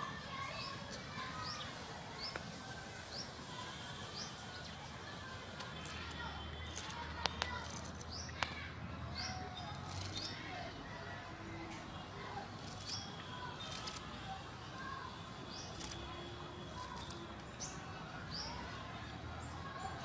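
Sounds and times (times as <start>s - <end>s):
small birds chirping: 0.3s - 20.0s
knife snipping herb stems: 5.6s - 8.6s, 9.8s - 10.4s, 12.6s - 14.1s, 15.6s - 16.1s, 16.7s - 17.3s.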